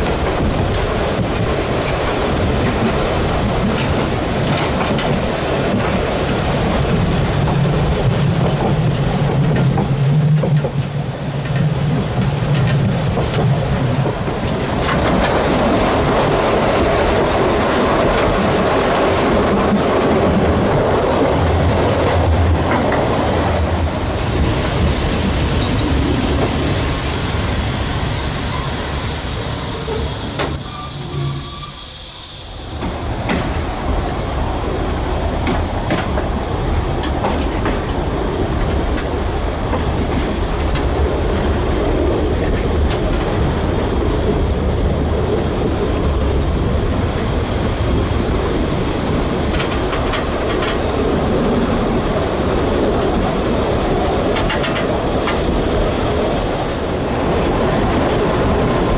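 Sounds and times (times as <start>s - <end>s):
train wheels clattering on rails: 0.0s - 31.5s, 32.7s - 58.9s
wheel squeal: 27.3s - 32.5s.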